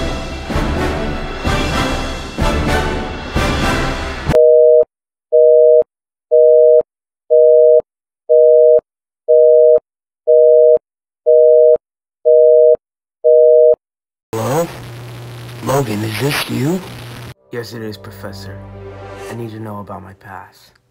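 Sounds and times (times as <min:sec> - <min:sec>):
theme music: 0:00.0 - 0:04.4, 0:16.2 - 0:20.6
telephone busy signal: 0:04.4 - 0:13.8.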